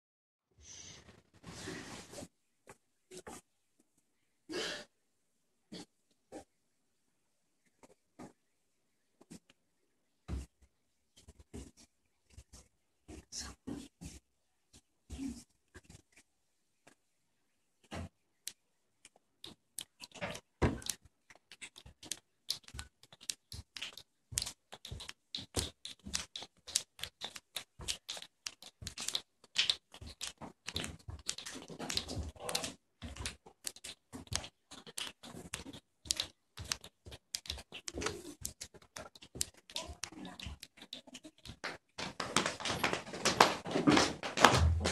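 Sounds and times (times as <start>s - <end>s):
children patting and clapping hands: 18.5s - 44.9s.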